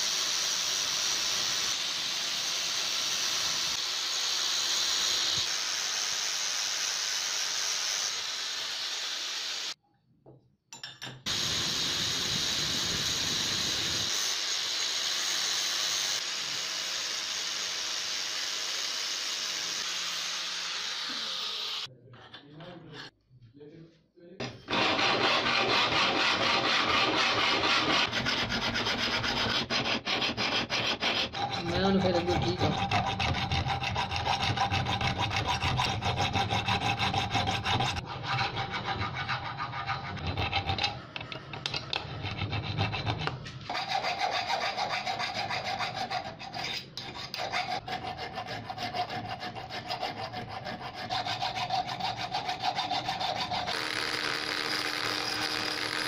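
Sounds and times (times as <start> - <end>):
rotary tool grinding whine: 12.8 - 21.9, 24.7 - 56.0
hand file rasping on steel: 24.7 - 41.0, 41.9 - 56.0.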